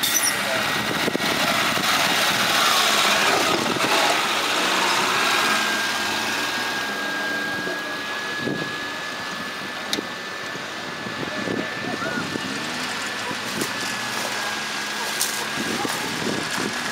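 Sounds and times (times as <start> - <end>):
engine running at low revs: 0.0 - 16.9.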